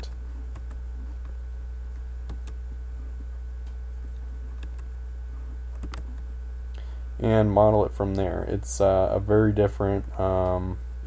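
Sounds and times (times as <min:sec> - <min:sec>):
low hum: 0:00.0 - 0:11.0
computer mouse clicks: 0:00.1 - 0:01.4, 0:02.2 - 0:02.6, 0:04.6 - 0:04.9, 0:05.7 - 0:06.3.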